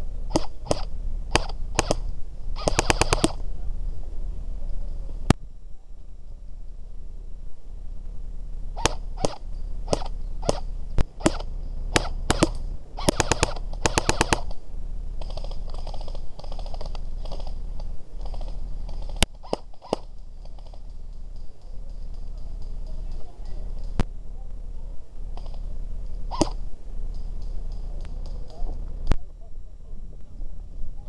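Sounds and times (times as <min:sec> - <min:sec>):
airsoft guns firing: 0:00.3 - 0:03.4, 0:08.8 - 0:14.6, 0:26.3 - 0:26.6.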